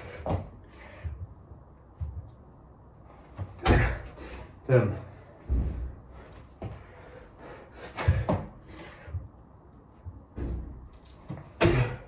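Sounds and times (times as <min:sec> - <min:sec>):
hard breathing: 0:00.0 - 0:01.5, 0:03.8 - 0:09.6
thuds on exercise mat: 0:00.2 - 0:00.5, 0:03.4 - 0:04.1, 0:08.0 - 0:08.5, 0:10.3 - 0:10.8, 0:11.6 - 0:12.0.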